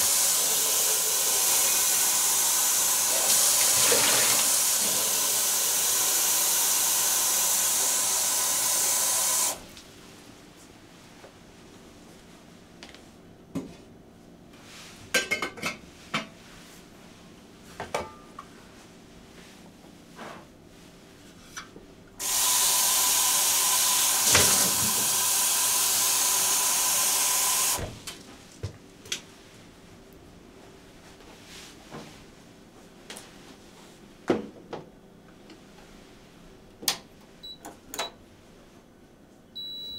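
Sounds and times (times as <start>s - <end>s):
water running into sink: 0.0s - 9.5s, 22.2s - 27.8s.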